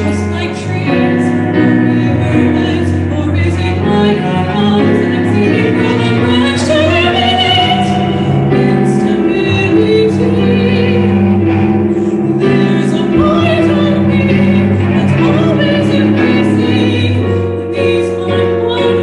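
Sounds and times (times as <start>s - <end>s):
bowed cello: 0.0s - 19.0s
piano accompaniment: 0.0s - 19.0s
soprano singing: 0.0s - 19.0s.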